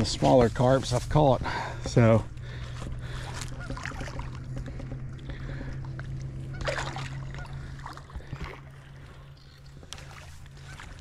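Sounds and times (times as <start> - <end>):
steady low hum: 0.0 - 11.0
fish splashing in shallows: 3.0 - 11.0.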